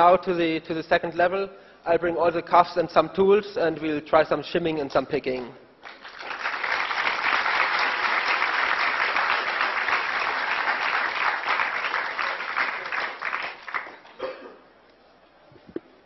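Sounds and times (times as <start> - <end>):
audience applauding: 5.8 - 14.2.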